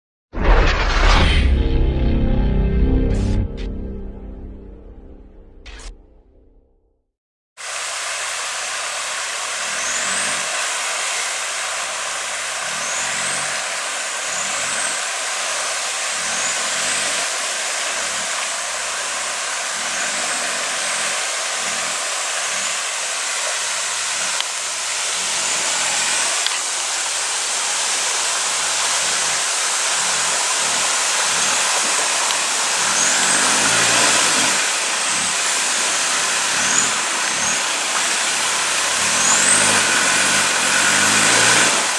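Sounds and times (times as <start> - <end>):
truck engine running at low revs: 31.6 - 41.9.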